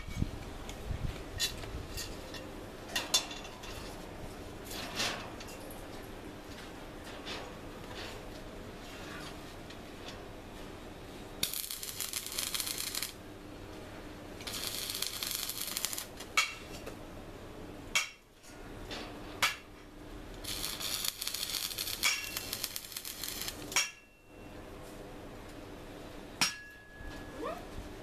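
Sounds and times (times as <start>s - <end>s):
arc welding crackling hiss: 11.4s - 13.2s, 14.4s - 16.2s, 20.4s - 23.8s.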